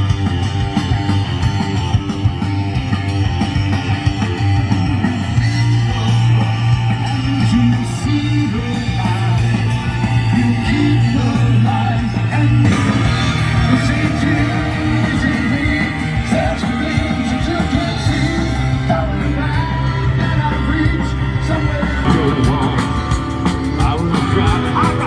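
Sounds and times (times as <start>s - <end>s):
live rock band playing: 0.0s - 25.0s
person singing: 5.4s - 25.0s.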